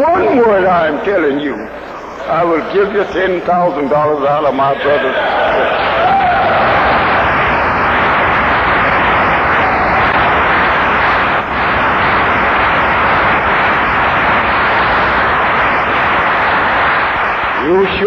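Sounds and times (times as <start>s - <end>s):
large audience applauding: 4.8s - 18.0s.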